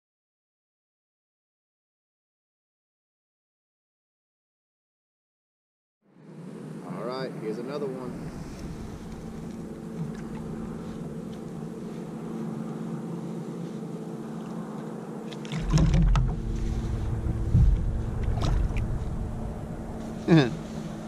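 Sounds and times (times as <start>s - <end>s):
steady low hum: 6.2s - 21.0s
low rumble: 8.0s - 12.4s, 15.5s - 21.0s
handling noise in plastic kayak: 8.4s - 12.8s, 13.5s - 19.2s.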